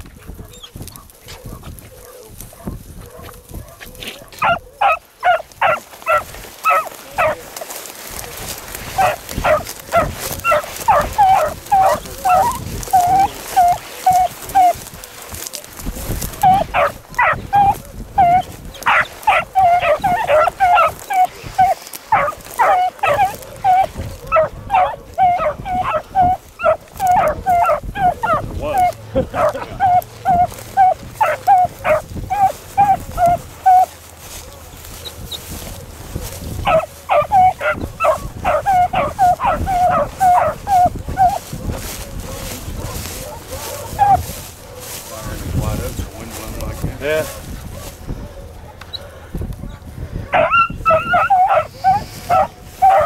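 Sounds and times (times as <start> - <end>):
dogs baying and barking: 0.0 - 53.0.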